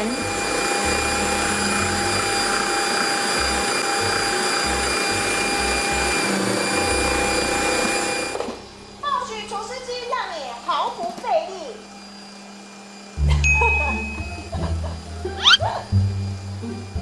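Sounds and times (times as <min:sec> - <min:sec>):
stand mixer motor whirring: 0:00.0 - 0:09.0, 0:11.8 - 0:13.2.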